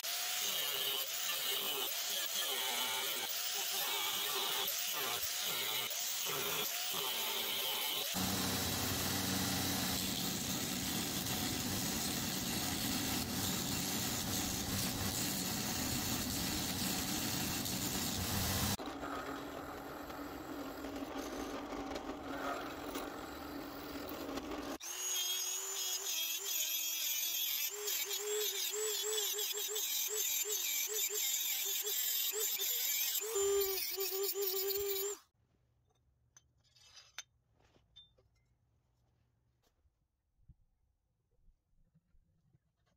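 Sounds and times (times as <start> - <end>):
angle grinder cutting steel: 0.0 - 35.2
drill boring through steel: 0.0 - 35.2
rotary tool whining: 0.0 - 35.2.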